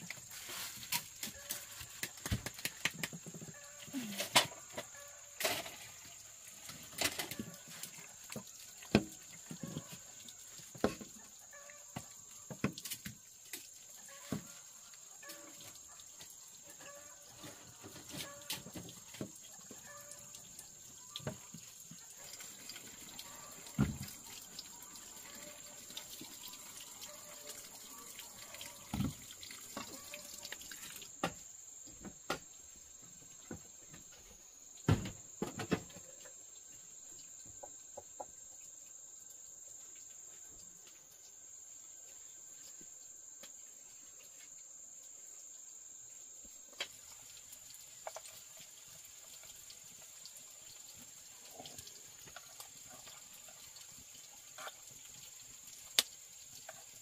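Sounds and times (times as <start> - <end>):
water running and splashing: 0.0 - 34.2, 46.1 - 57.0.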